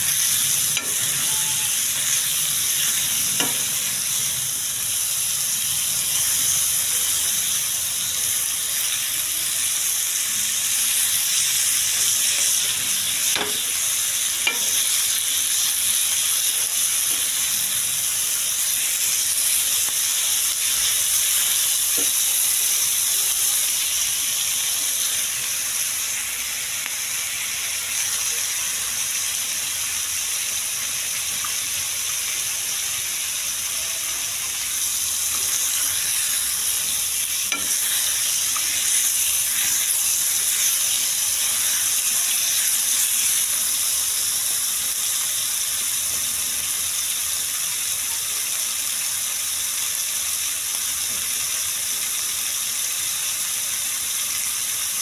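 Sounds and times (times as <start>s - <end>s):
chicken sizzling in oil: 0.0s - 55.0s
metal spoon clicking on pan: 13.3s - 13.8s, 14.5s - 14.9s, 37.5s - 37.9s.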